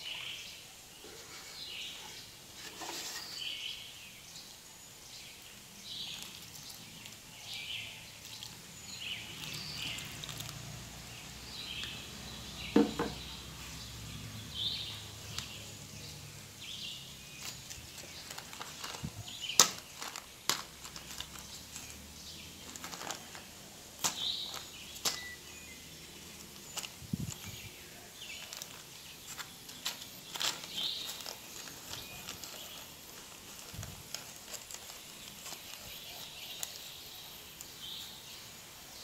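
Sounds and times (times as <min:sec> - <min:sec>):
small birds calling: 0:00.0 - 0:39.0
plastic bags crackling: 0:05.8 - 0:13.3, 0:16.6 - 0:38.0.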